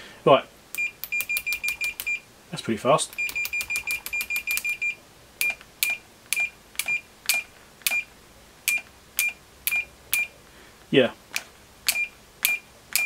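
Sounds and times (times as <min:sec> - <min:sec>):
multimeter continuity beeps: 0:00.8 - 0:02.3, 0:03.1 - 0:08.1, 0:08.7 - 0:10.4, 0:11.9 - 0:13.0.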